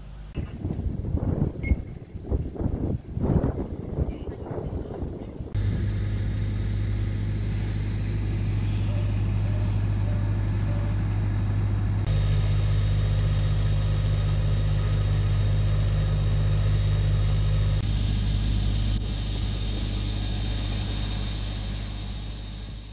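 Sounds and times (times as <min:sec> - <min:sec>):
pump engine droning: 0:05.2 - 0:22.9.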